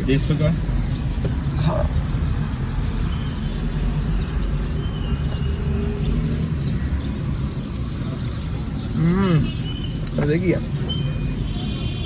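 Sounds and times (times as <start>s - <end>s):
car engine rumble: 0.0s - 4.6s
surrounding traffic: 0.0s - 12.0s.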